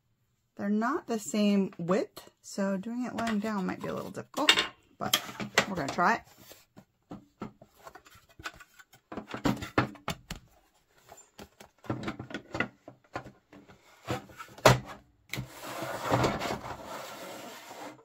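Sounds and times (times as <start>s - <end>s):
plastic panels clicking and knocking: 7.1s - 10.6s, 11.4s - 13.7s.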